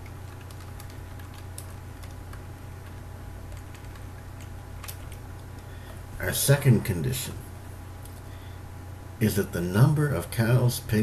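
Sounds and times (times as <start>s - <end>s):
steady low hum: 0.0s - 11.0s
keyboard keys clicking: 0.3s - 5.2s.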